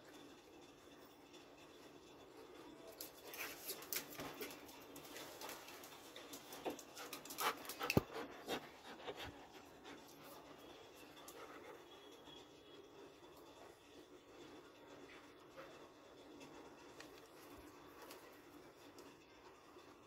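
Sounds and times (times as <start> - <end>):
dog panting and snuffling: 5.4 - 10.6.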